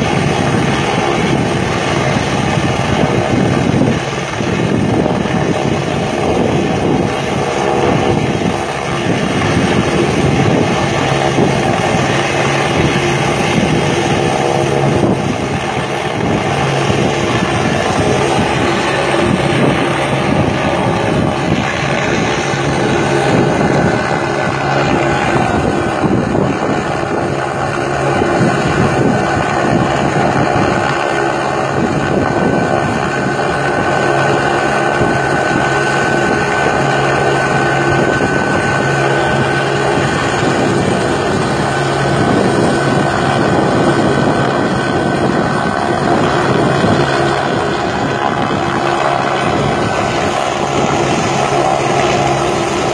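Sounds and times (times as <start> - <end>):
helicopter rotor and engine: 0.0 - 52.9.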